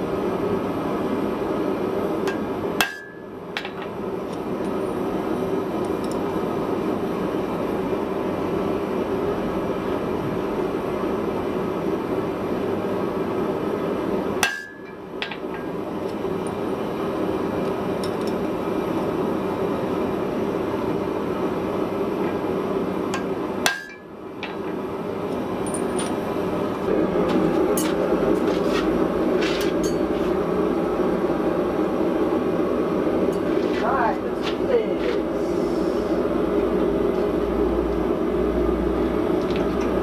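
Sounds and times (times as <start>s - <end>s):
gas forge burner roaring: 0.0s - 40.0s
hammer clanging on anvil: 2.3s - 3.8s, 14.4s - 15.4s, 23.7s - 24.1s.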